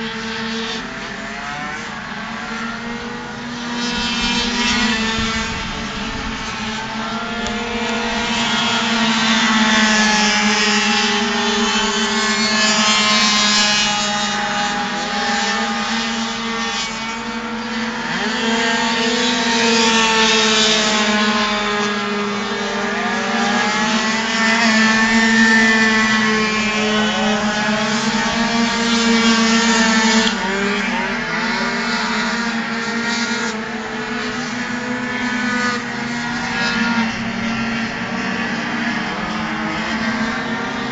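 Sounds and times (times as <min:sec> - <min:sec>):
scooter engines revving: 0:00.0 - 0:40.9.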